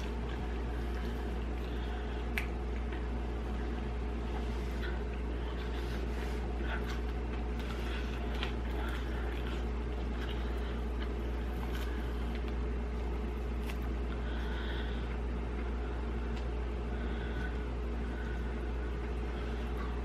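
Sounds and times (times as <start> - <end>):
fingers handling food: 0.0 - 5.8
chewing: 0.0 - 20.0
steady low hum: 0.0 - 20.0.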